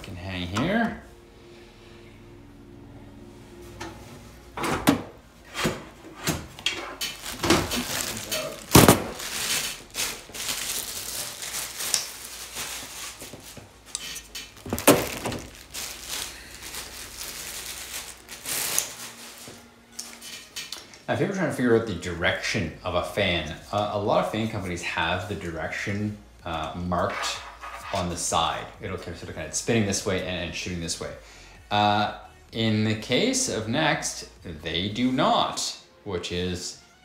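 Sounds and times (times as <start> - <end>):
rustling: 6.8 - 20.7.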